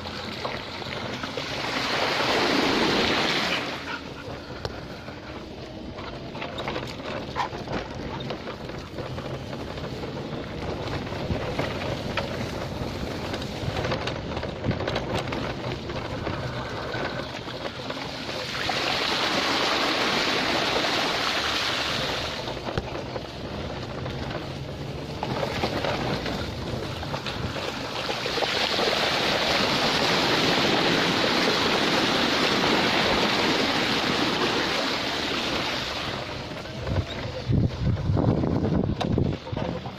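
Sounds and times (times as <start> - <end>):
tyres splashing through water: 0.0 - 4.2, 14.8 - 37.3
bike tyres rattling on dirt: 0.0 - 39.9.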